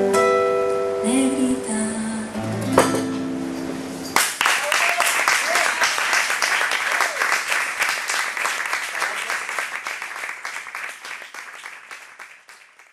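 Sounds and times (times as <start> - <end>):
audience applauding: 4.2 - 12.9.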